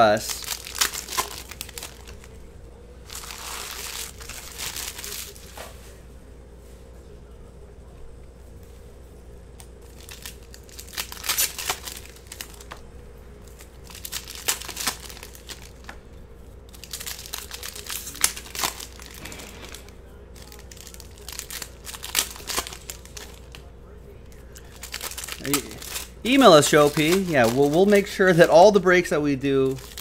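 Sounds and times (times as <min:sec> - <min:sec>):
foil wrappers tearing and crinkling: 0:00.0 - 0:02.4, 0:03.0 - 0:05.6, 0:09.8 - 0:12.8, 0:13.4 - 0:16.0, 0:16.7 - 0:23.7, 0:24.3 - 0:30.0.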